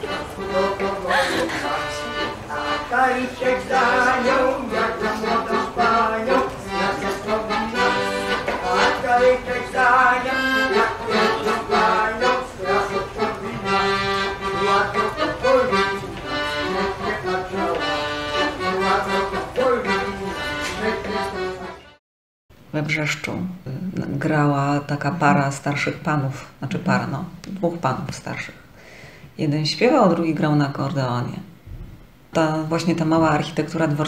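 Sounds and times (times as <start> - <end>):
accordion playing a dance tune: 0.0 - 22.0.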